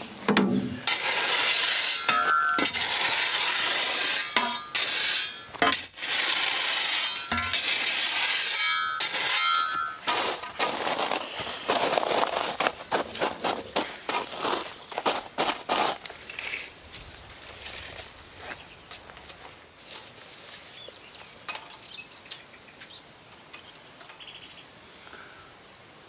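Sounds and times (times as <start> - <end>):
gravel pouring from wheelbarrow: 0.0 - 18.2
spade scraping gravel: 0.0 - 22.0.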